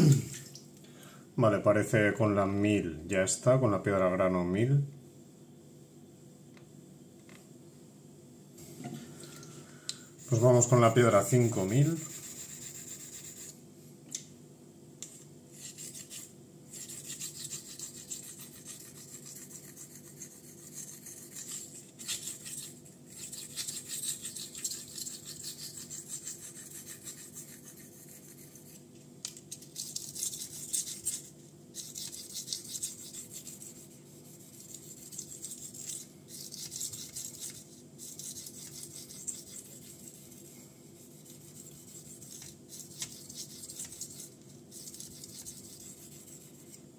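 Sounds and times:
block rubbed on whetstone: 10.2 - 13.6, 15.6 - 28.8, 29.8 - 46.8
knife blade scraping on whetstone: 15.6 - 28.8.

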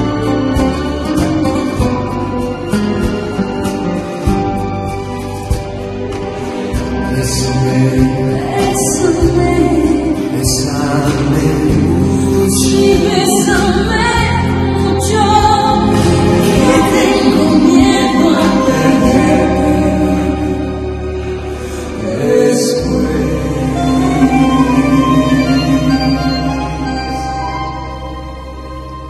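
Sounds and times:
sung vocal line: 6.9 - 28.8
sustained low notes: 18.6 - 28.9.

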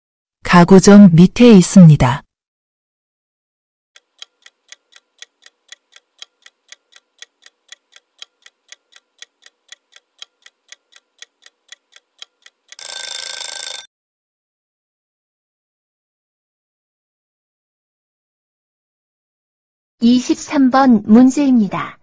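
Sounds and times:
clock ticking: 4.0 - 13.9.

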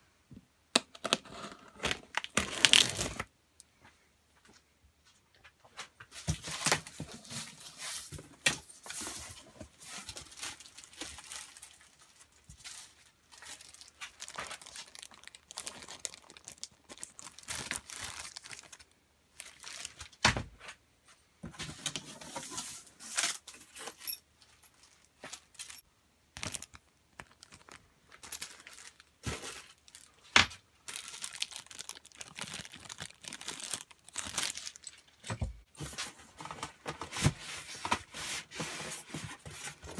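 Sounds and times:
tape tearing: 0.8 - 3.3
packaging crinkling: 1.0 - 3.3, 8.9 - 20.2, 26.4 - 35.3.

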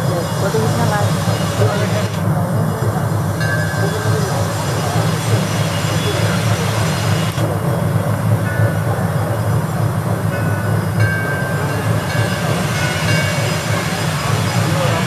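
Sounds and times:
fountain water splashing: 0.0 - 7.5.

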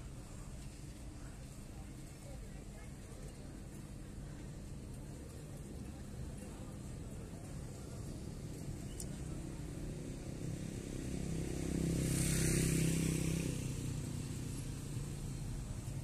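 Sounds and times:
low hum of city traffic: 0.0 - 16.0
motorcycle passing: 8.3 - 16.0.

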